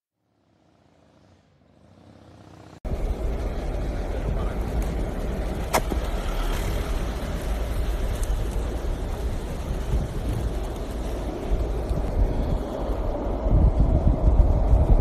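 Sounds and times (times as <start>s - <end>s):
skateboard wheels rolling on asphalt: 0.3s - 15.0s
wind on microphone: 6.0s - 15.0s.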